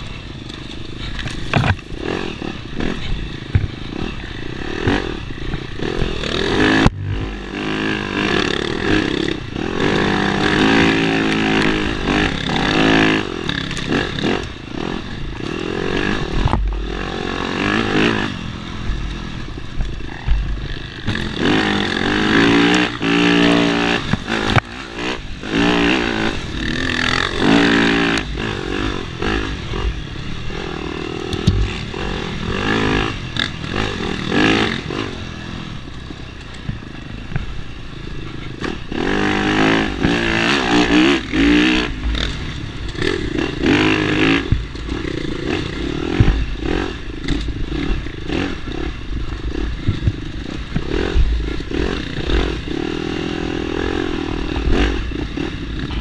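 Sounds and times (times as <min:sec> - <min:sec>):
dirt bike engine revving: 0:00.0 - 0:56.0
bike knocks and clatter: 0:01.0 - 0:01.9, 0:31.3 - 0:31.8.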